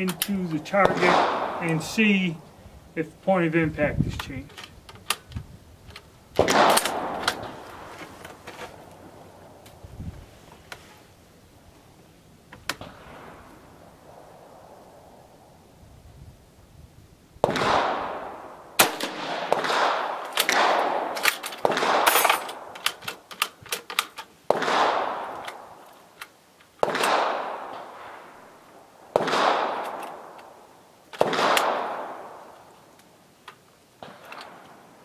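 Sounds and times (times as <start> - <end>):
rifle shots echoing: 0.0 - 2.4, 6.4 - 7.9, 17.4 - 22.8, 24.5 - 25.8, 26.8 - 28.5, 29.1 - 30.6, 31.2 - 32.6
rifle bolt clicks: 4.2 - 7.5.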